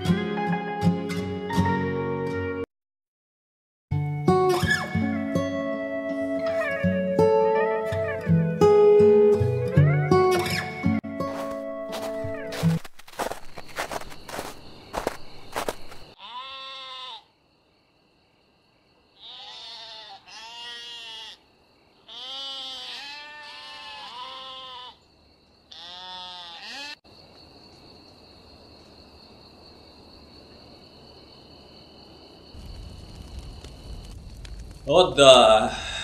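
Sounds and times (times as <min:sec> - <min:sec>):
sheep bleating: 0:16.2 - 0:17.3, 0:19.2 - 0:21.4, 0:22.1 - 0:25.0, 0:25.7 - 0:27.0.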